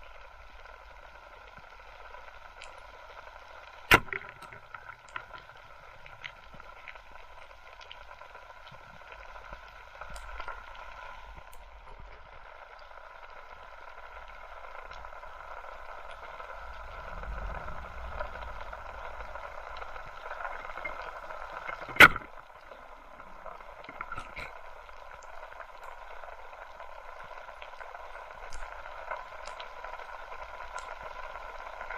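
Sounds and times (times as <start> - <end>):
faint ticks: 0.0 - 31.9
spear gun shot crack: 3.9 - 4.2.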